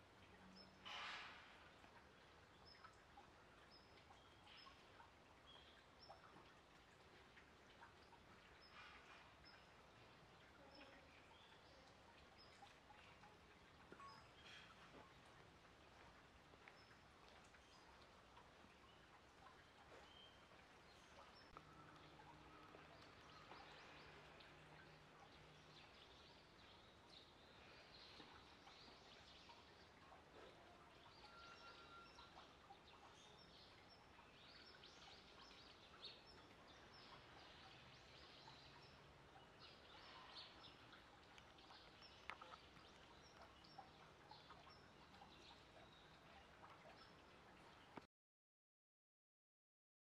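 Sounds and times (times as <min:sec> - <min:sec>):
bird chirps: 0:13.9 - 0:14.8.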